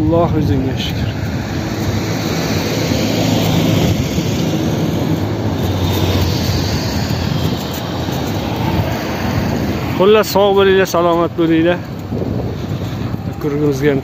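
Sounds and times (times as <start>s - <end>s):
van engine hum: 0.0s - 14.0s
wind rumbling on microphone: 0.0s - 14.0s.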